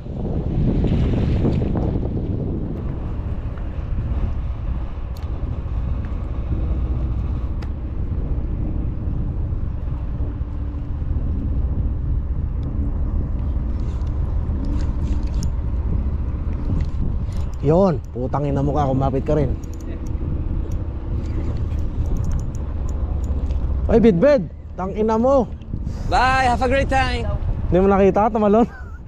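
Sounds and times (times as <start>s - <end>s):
wind buffeting microphone: 0.0s - 29.0s
faint clicks: 19.6s - 23.7s.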